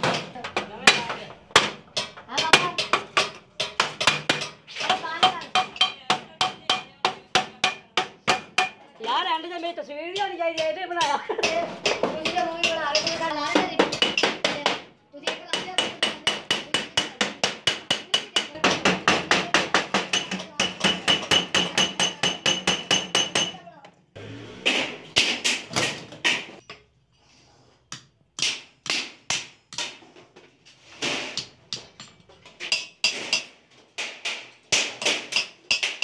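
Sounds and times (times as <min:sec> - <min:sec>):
hammer striking sheet metal: 0:15.4 - 0:23.6, 0:24.6 - 0:26.7, 0:32.6 - 0:36.0.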